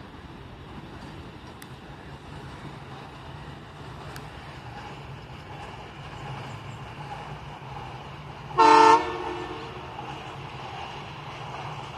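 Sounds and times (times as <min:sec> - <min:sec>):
locomotive horn blast: 0:08.6 - 0:09.9.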